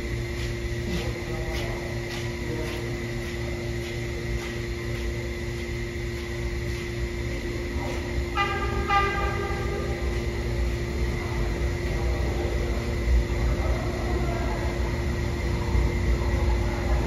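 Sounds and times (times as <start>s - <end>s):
train rumbling: 7.8s - 12.9s
train horn toots: 8.3s - 10.0s.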